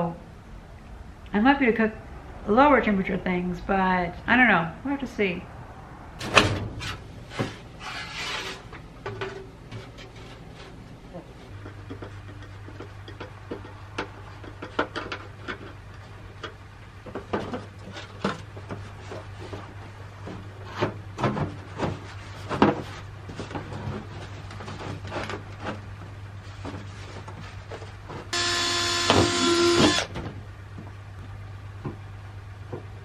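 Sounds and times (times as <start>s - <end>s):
sheet-metal pipes clanking and scraping: 6.2s - 10.8s
cordless drill whirring: 28.4s - 30.1s.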